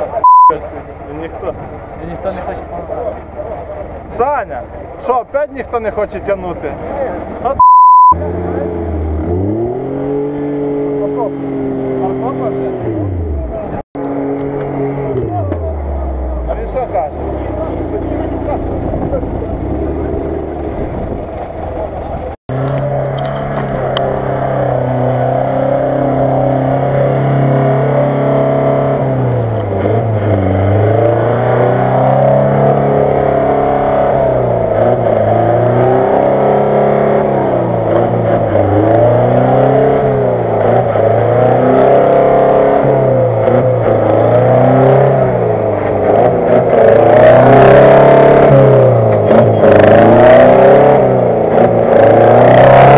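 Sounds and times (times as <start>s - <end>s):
off-road vehicle engine revving in mud: 0.0s - 52.9s.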